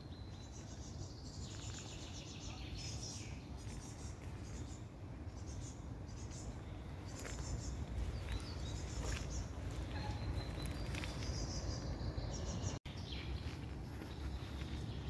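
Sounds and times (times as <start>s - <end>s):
low outdoor rumble: 0.0s - 15.0s
songbirds chirping: 0.0s - 15.0s.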